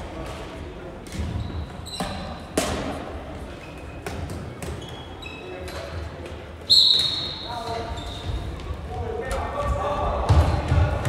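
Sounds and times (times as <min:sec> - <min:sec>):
shoes squeaking on floor: 0:01.2 - 0:02.5, 0:03.5 - 0:06.0, 0:06.6 - 0:08.8.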